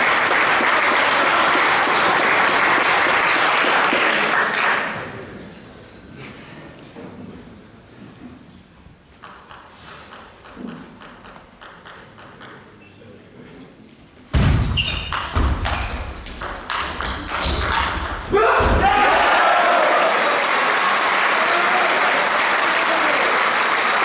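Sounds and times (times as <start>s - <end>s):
table tennis ball clicking: 9.2s - 12.6s
people shouting: 18.3s - 20.4s.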